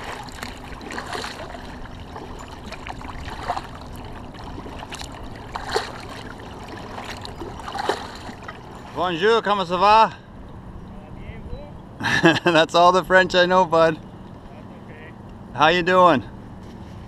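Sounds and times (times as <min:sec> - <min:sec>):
water lapping against kayak hull: 0:00.0 - 0:09.4.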